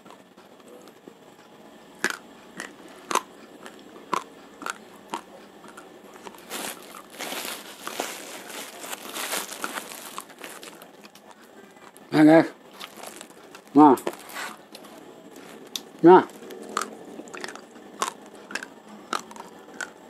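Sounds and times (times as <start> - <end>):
raw rice crunching in mouth: 2.0 - 11.2, 12.7 - 20.0
hand digging in plastic bag of rice: 6.2 - 10.9, 12.7 - 16.4.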